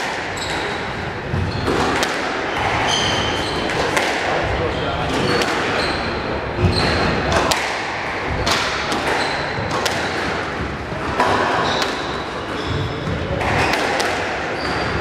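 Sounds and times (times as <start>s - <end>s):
squash ball hitting rackets and walls: 0.0s - 15.0s
shoes squeaking on wooden floor: 0.3s - 2.0s, 4.8s - 7.1s, 9.0s - 9.8s, 11.5s - 13.7s.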